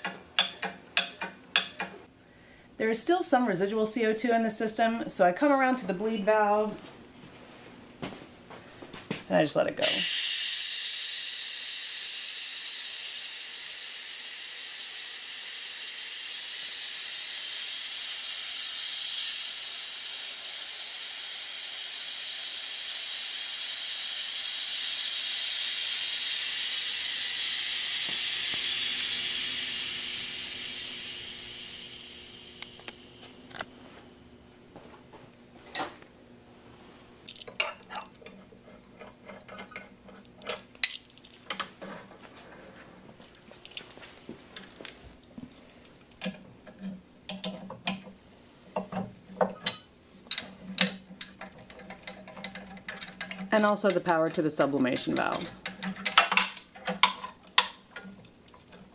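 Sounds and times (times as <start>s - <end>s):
gas venting hiss: 9.8s - 33.3s.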